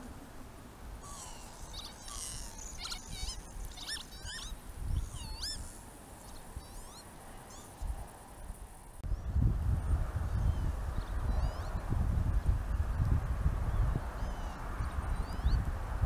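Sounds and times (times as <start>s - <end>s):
lapwings whistling calls: 1.0s - 5.7s.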